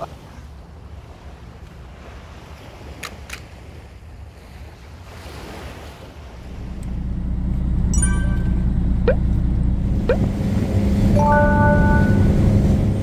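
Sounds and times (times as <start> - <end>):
boat engine rumbling: 6.0 - 13.0
quick rising blips: 7.9 - 9.3.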